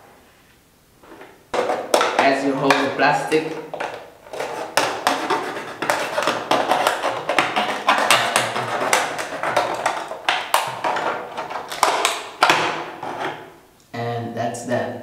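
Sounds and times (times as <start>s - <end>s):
plastic bottle crinkling: 1.0s - 13.4s
box cutter cutting plastic: 4.3s - 12.6s.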